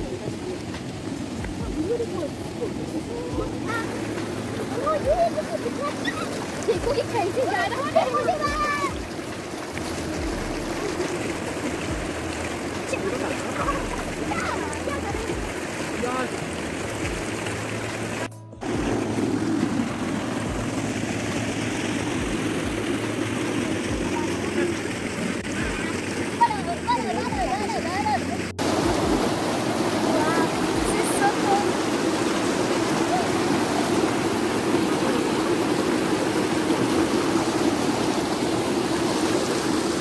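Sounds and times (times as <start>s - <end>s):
water rushing through channel: 0.0s - 40.0s.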